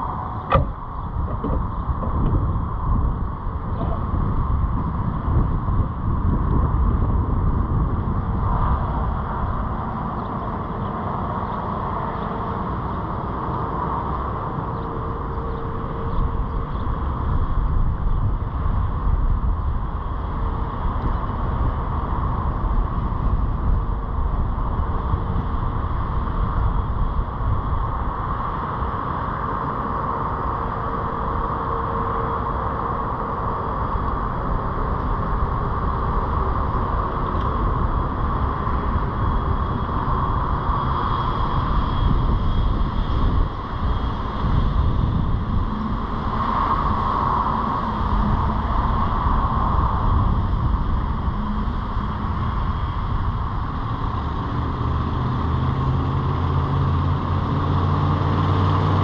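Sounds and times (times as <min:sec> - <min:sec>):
car engine and tyres rumbling: 0:00.0 - 0:59.0
faint steady hum: 0:00.0 - 0:59.0.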